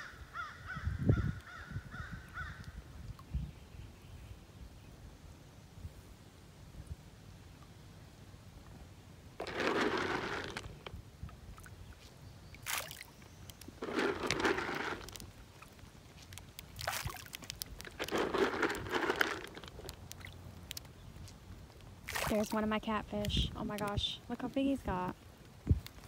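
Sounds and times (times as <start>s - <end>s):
fish splashing in pond: 12.5s - 21.0s, 21.9s - 22.8s.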